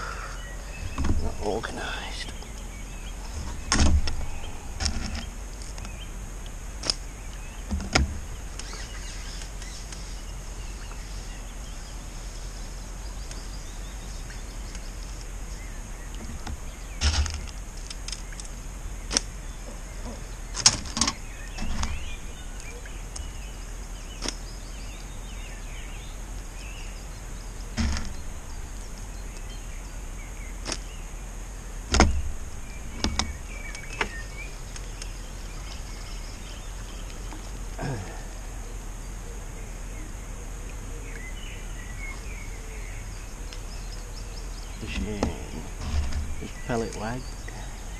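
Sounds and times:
steady high hiss: 0.0 - 47.9
bird chirps: 18.2 - 31.1, 32.0 - 47.9.

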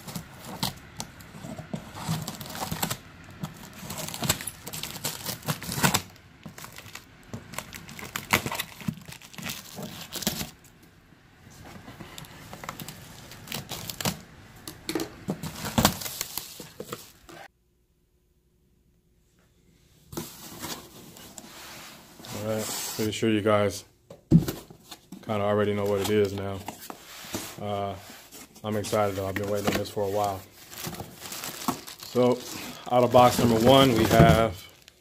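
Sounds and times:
cardboard flaps rustling and knocking: 33.2 - 34.6.

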